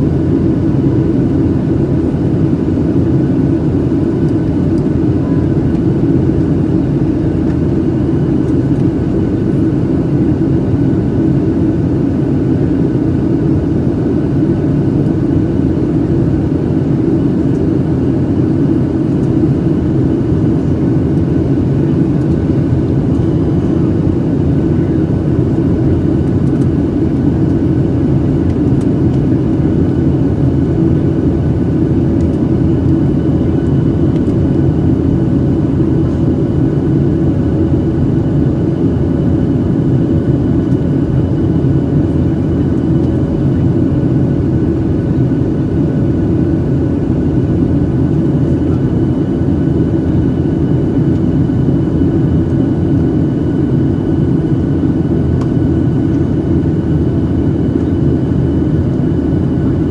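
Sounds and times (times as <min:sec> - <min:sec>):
airflow rush in plane cabin: 0:00.0 - 0:59.9
jet engine drone: 0:00.0 - 0:59.9.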